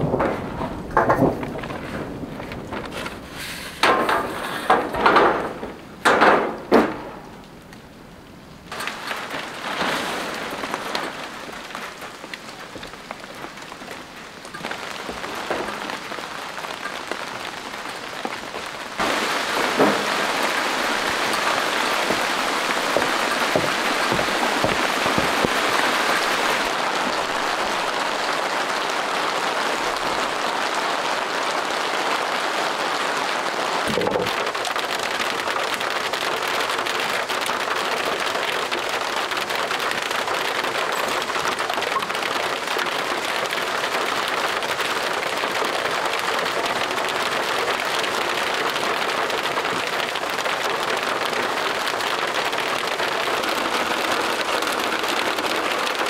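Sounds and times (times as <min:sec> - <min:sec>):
loud knocks: 0:00.0 - 0:02.8, 0:03.8 - 0:07.3, 0:19.0 - 0:26.7
rain falling: 0:00.0 - 0:56.0.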